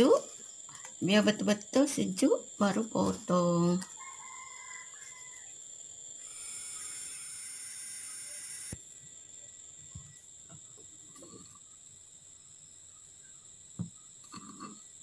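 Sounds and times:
high-pitched insect whine: 0.0 - 15.0
soft thump: 13.8 - 14.0.

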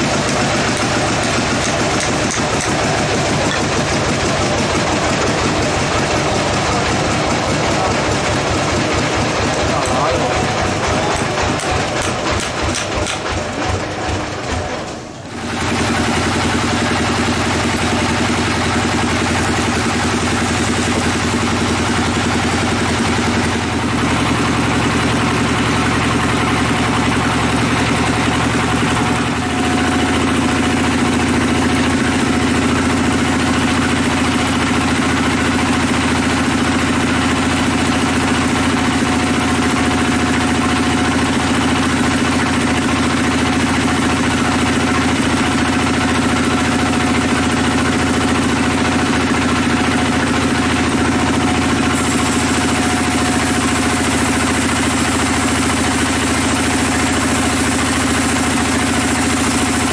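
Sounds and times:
band saw cutting log: 0.0 - 48.2, 48.9 - 59.9.

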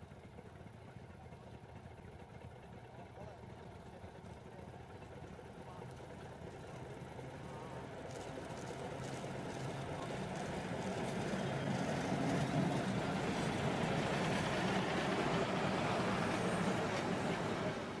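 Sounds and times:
train engine drone passing: 6.0 - 18.0.

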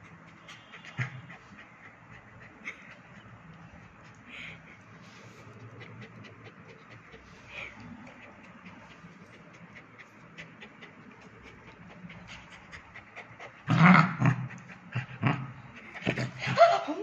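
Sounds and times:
puppy panting: 0.0 - 16.6
puppy growling snarls: 13.5 - 16.4.

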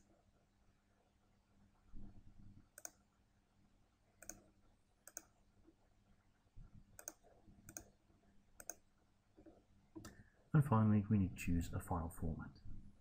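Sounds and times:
computer mouse clicks: 2.7 - 3.0, 4.2 - 5.4, 7.0 - 8.0, 8.6 - 8.8.

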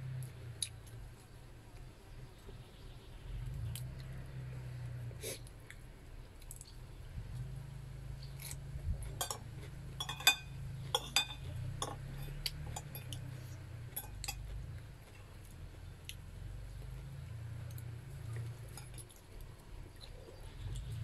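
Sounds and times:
cutlery clinking on plate: 9.2 - 13.2, 14.0 - 14.4.

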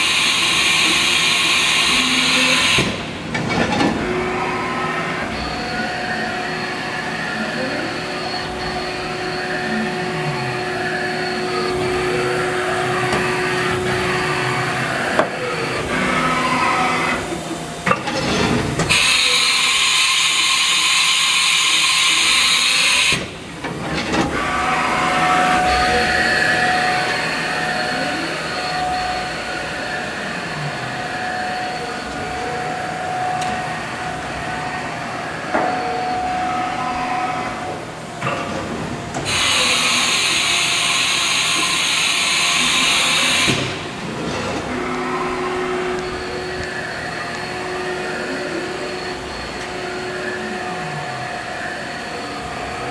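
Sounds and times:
machine hum: 0.0 - 52.9
servo motors whining: 1.7 - 20.6, 21.4 - 38.4, 39.2 - 52.9
steady tone: 24.2 - 38.1, 43.8 - 52.9.

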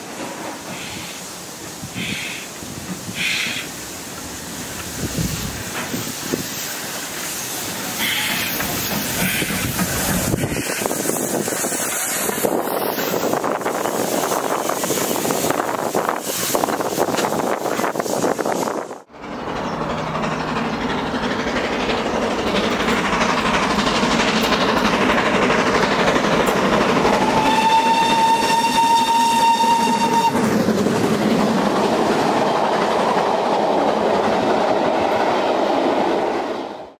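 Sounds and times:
steam locomotive rushing: 0.0 - 37.0
carriages rattling over rail joints: 4.0 - 14.2
steam whistle: 27.1 - 30.4.

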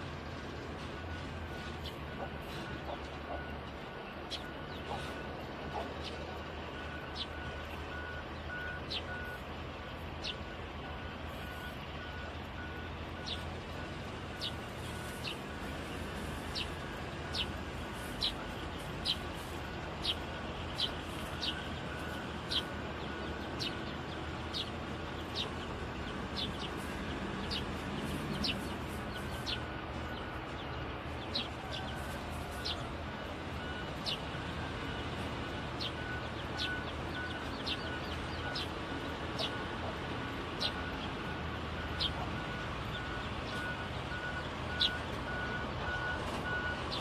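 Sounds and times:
distant heavy machinery engines: 0.0 - 47.0
reversing alarm beeping: 0.0 - 47.0
bird chirping: 11.3 - 32.9, 33.6 - 46.2.

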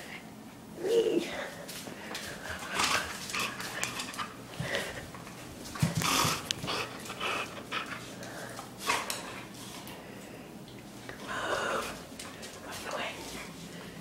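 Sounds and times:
puppy panting: 5.8 - 9.4.

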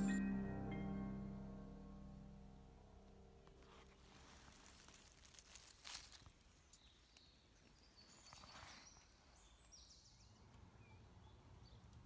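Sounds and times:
high birdsong notes: 0.0 - 3.6
soft rustling: 3.5 - 9.4.

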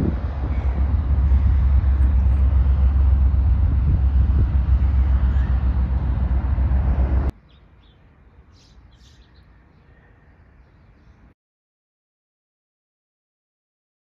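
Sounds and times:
loud low rumble: 0.0 - 7.3
bird chirps: 7.4 - 11.3.

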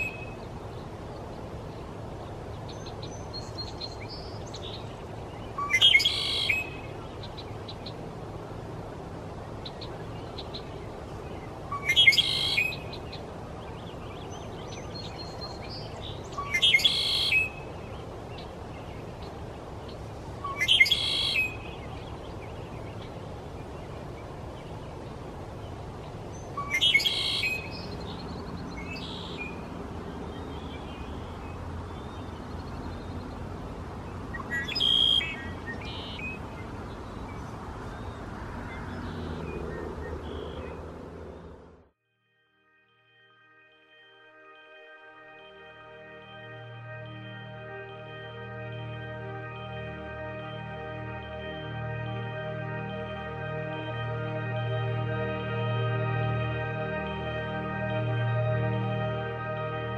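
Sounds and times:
blackbird trilling song: 0.0 - 0.8, 2.5 - 8.0, 9.6 - 24.0, 26.0 - 33.3, 34.3 - 40.8.

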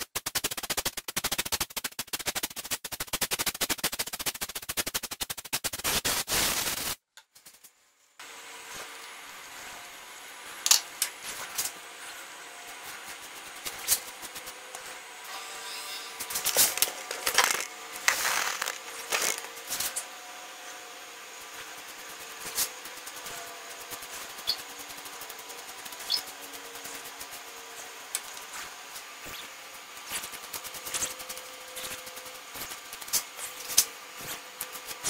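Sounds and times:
foam brush stroking wood: 16.4 - 19.9.

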